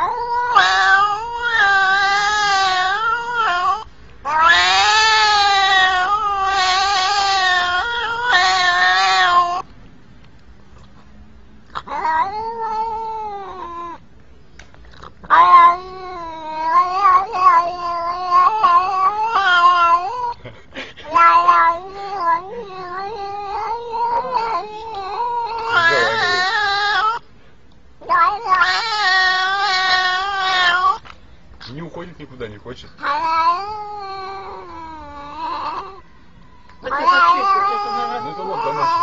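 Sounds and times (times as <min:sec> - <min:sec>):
cat meowing loudly: 0:00.0 - 0:09.7, 0:11.8 - 0:14.0, 0:15.2 - 0:20.4, 0:21.1 - 0:27.2, 0:28.0 - 0:31.1, 0:33.0 - 0:39.0.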